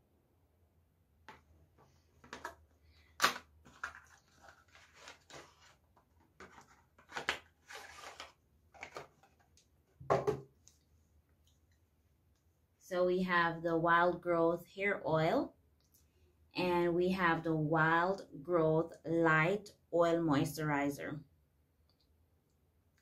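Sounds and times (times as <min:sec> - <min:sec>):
plastic bottles knocking: 0:10.0 - 0:10.5.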